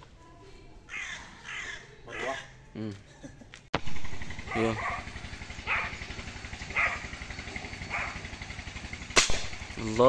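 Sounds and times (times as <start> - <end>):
crow cawing: 0.9 - 2.5
motorcycle engine idling: 3.8 - 10.0.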